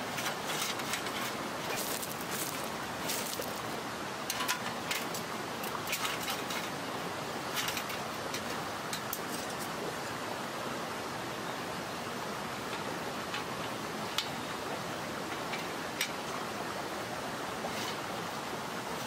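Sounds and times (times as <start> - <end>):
metal clicks and knocks on gravel: 0.0 - 6.8, 7.5 - 9.7
mountain stream rushing: 0.0 - 19.0.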